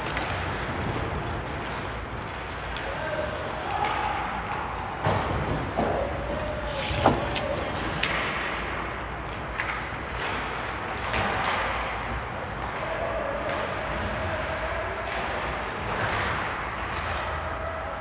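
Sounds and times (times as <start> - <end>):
skate blades scraping ice: 0.0 - 3.7
hockey sticks and puck clacking: 0.0 - 18.0.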